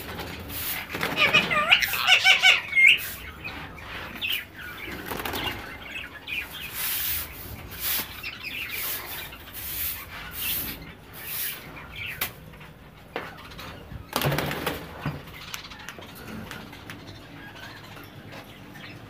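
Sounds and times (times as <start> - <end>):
broom sweeping concrete: 0.4 - 0.9, 2.9 - 4.5, 6.5 - 11.8.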